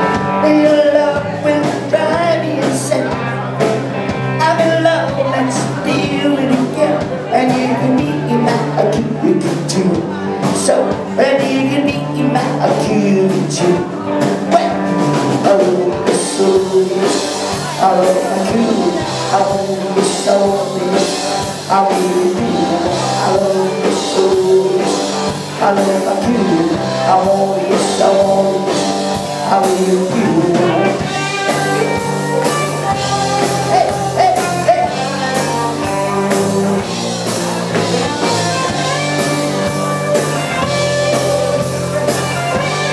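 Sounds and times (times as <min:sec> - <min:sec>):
electric guitars: 0:00.0 - 0:42.9
person singing: 0:00.0 - 0:42.9
steady drum beat: 0:00.0 - 0:42.9.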